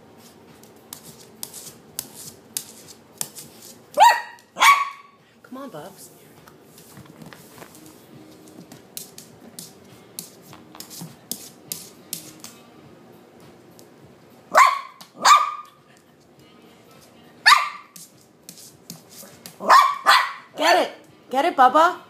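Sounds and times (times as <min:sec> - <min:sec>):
small dog barking: 0:04.0 - 0:05.2, 0:14.5 - 0:15.8, 0:17.4 - 0:18.0, 0:19.6 - 0:21.0
dog claws ticking on tiles: 0:08.5 - 0:12.6.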